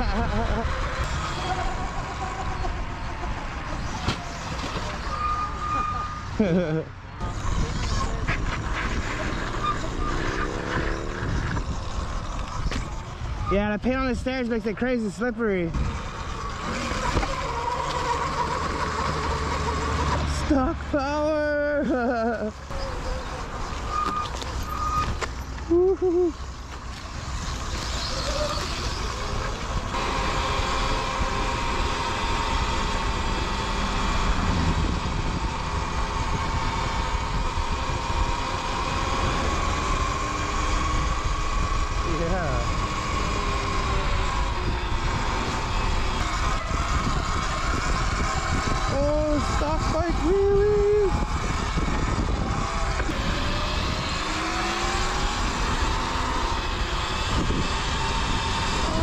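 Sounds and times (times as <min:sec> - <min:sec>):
wind: 0:00.0 - 0:59.0
electric motor whining: 0:15.8 - 0:22.0, 0:26.7 - 0:59.0.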